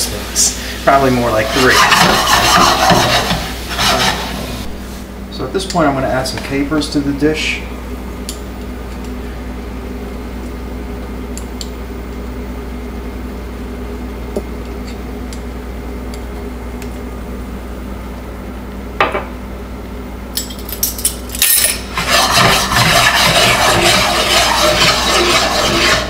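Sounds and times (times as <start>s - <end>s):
sauce sizzling loudly: 0.0s - 5.0s
steady background hum: 0.0s - 26.0s
skillet scraped on burner grate: 0.9s - 5.0s, 21.6s - 26.0s.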